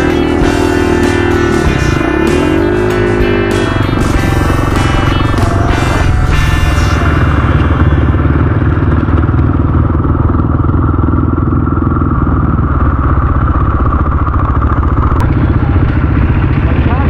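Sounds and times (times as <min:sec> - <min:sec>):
dirt bike engine running: 0:00.0 - 0:17.0
clatter: 0:03.9 - 0:17.0.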